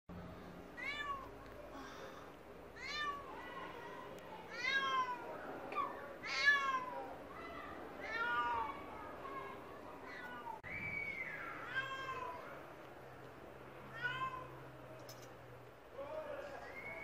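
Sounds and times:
cat meowing: 0.8s - 1.3s, 2.8s - 3.4s, 4.5s - 7.1s.

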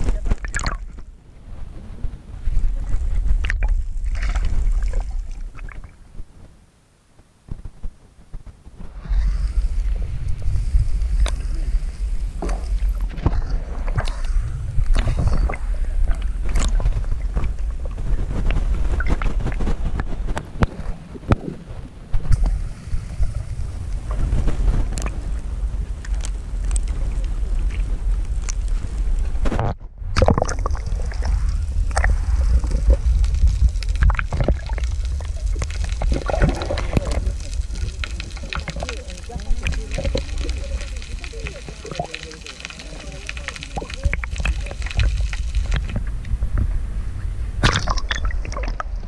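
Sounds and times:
muffled underwater rumble: 0.0s - 49.0s.

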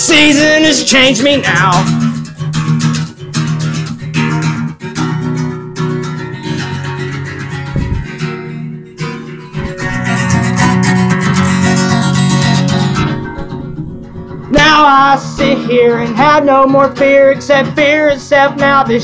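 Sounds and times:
acoustic guitar strummed chords: 0.0s - 19.0s
short low thump: 7.7s - 8.2s.

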